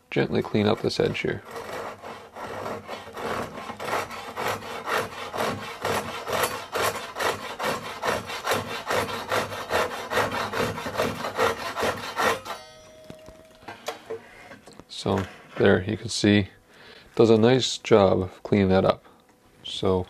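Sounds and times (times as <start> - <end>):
hand saw sawing hardwood: 0.6 - 12.6.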